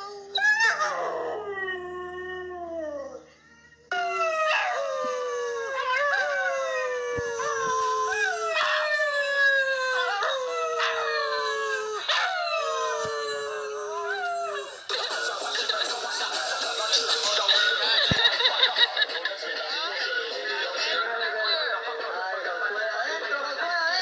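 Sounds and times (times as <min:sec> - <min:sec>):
puppy howling: 0:00.0 - 0:03.3, 0:03.9 - 0:14.9.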